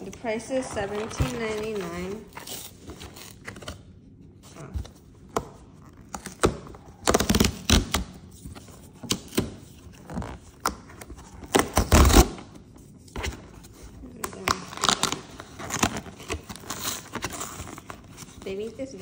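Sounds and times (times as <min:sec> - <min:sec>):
cardboard ripping along perforations: 0:05.8 - 0:12.6, 0:13.2 - 0:19.0.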